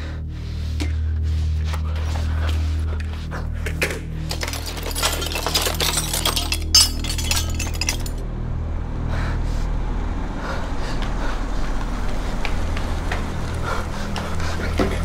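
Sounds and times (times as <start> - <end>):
metal tools clinking and clattering: 4.2 - 8.2.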